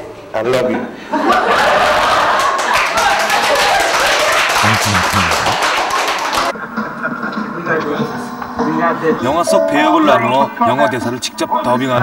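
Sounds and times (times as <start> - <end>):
students clapping: 2.3 - 6.5.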